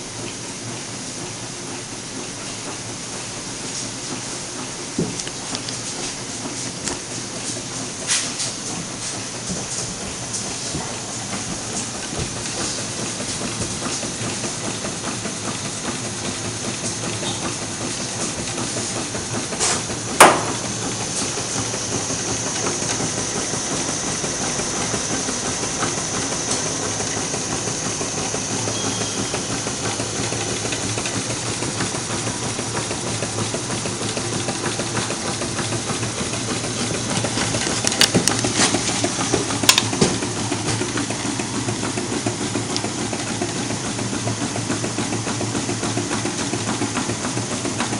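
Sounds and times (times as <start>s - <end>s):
gas burners hissing: 0.0s - 47.9s
stirling engine clattering: 8.3s - 47.9s
sharp knock: 20.2s - 20.6s.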